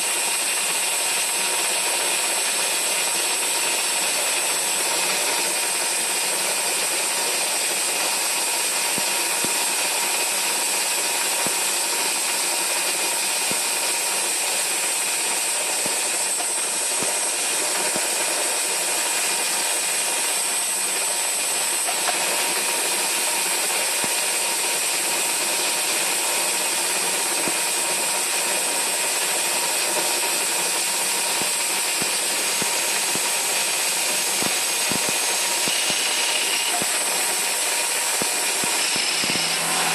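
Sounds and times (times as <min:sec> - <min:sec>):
lathe machine whir: 0:00.0 - 0:39.9
steady high tones: 0:33.0 - 0:39.9.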